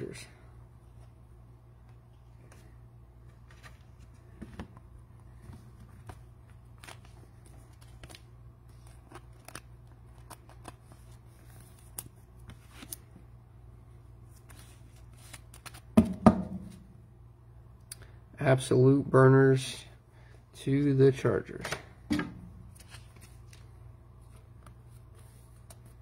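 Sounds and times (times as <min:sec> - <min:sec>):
cards and plastic sleeves rustling: 0:01.8 - 0:13.3, 0:14.2 - 0:16.0, 0:22.6 - 0:26.0.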